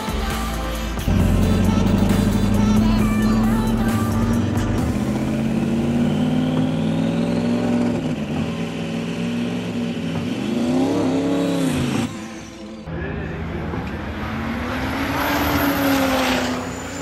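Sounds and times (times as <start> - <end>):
diesel truck engine revving: 0.6 - 12.8.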